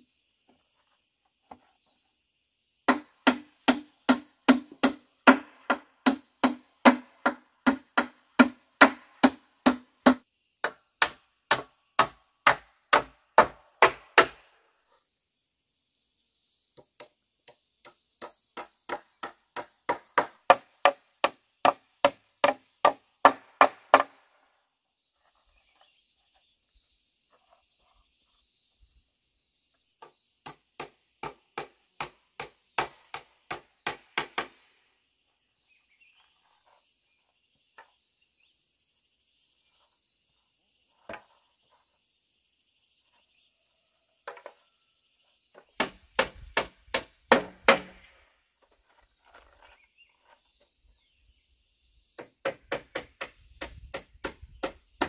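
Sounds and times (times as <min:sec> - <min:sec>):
insects droning: 0:00.0 - 0:55.0
blade chopping bamboo: 0:02.9 - 0:14.4, 0:45.8 - 0:48.1.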